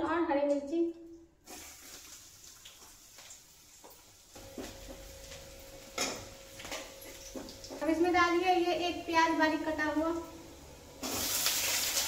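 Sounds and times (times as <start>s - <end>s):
food frying: 1.4s - 8.6s, 10.9s - 12.0s.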